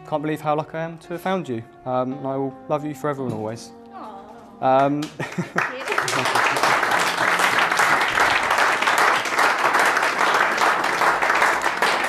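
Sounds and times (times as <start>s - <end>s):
crowd applauding: 4.8s - 12.0s.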